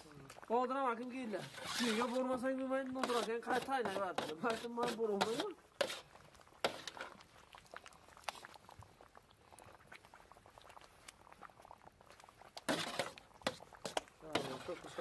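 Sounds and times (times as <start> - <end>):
thick food bubbling and popping: 0.0 - 15.0
ladle scraping and tapping metal bowls: 3.0 - 6.0, 12.7 - 15.0.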